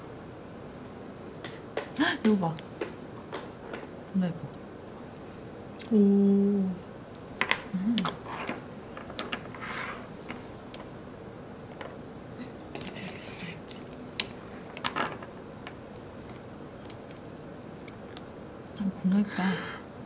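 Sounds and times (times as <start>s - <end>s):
soft scrapes: 9.6s - 10.6s.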